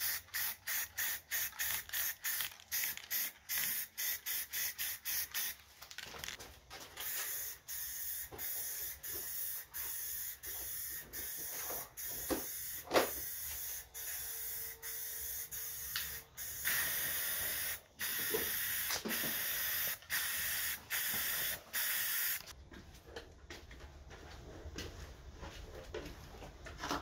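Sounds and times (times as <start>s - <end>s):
spray paint can hissing: 0.0s - 5.6s, 7.0s - 22.5s.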